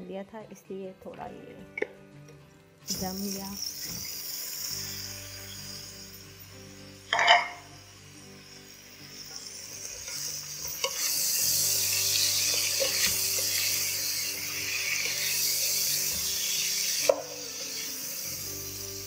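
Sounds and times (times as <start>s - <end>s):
meat sizzling in a pot: 2.8s - 19.0s.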